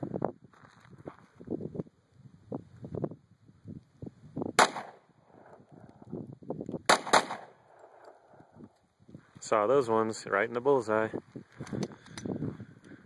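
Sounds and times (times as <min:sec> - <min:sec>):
pistol shots: 0:04.6 - 0:05.0, 0:06.9 - 0:08.2.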